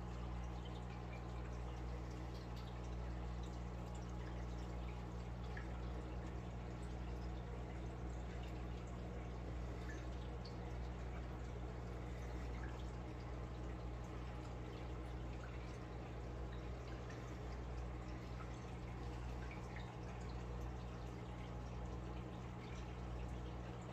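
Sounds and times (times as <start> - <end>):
aquarium equipment hum: 0.0 - 23.9
water dripping: 0.0 - 23.9
water trickling: 0.0 - 23.9.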